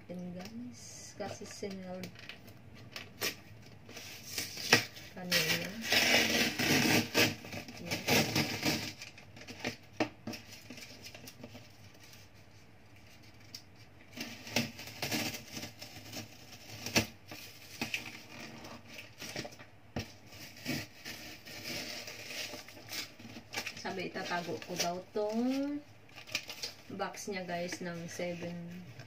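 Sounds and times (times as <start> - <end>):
packing tape peeling off: 3.2 - 9.8.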